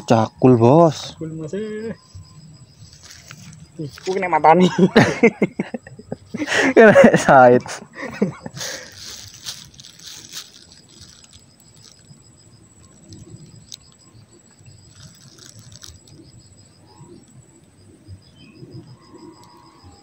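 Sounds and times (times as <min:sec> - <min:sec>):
faint high whine: 0:00.0 - 0:20.0
low rustling: 0:07.7 - 0:13.9
rapid high chirping: 0:08.5 - 0:17.3.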